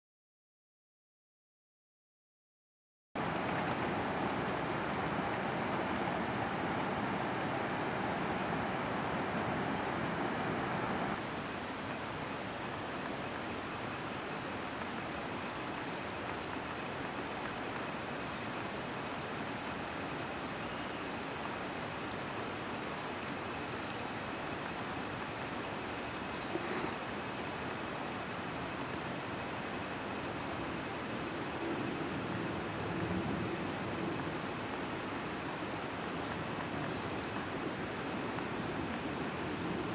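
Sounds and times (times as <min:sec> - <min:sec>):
insects chirring: 0:03.2 - 0:39.9.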